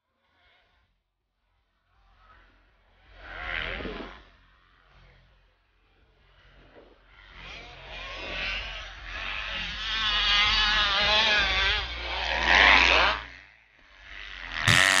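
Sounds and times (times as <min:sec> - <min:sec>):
motocross bike engines revving: 0:07.6 - 0:15.0.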